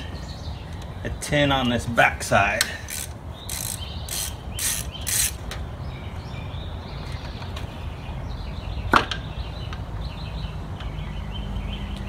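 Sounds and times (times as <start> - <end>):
ratchet wrench ratcheting: 2.9 - 5.4.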